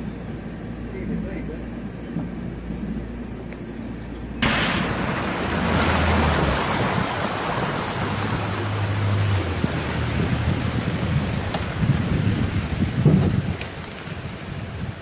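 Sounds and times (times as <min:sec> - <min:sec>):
low engine hum: 0:00.0 - 0:15.0
boat rushing through vegetation: 0:04.4 - 0:15.0
wind on microphone: 0:04.4 - 0:15.0.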